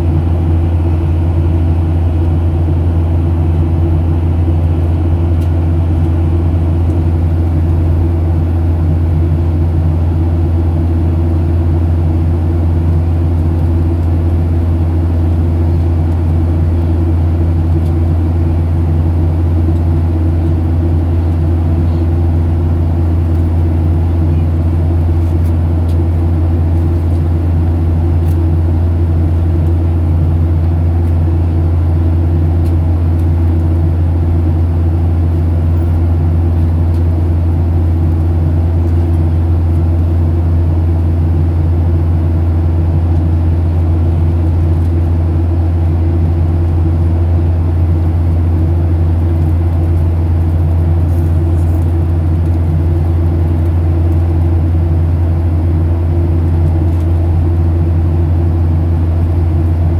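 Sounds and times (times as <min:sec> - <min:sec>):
airplane cabin engine drone: 0:00.0 - 0:59.9.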